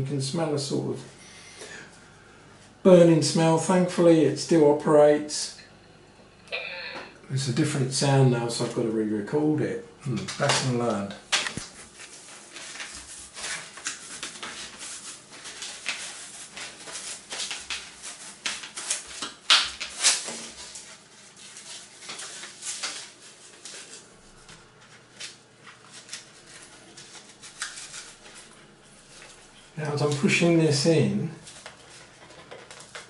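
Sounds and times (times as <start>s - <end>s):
tape being wrapped: 11.3s - 24.4s, 25.2s - 29.4s.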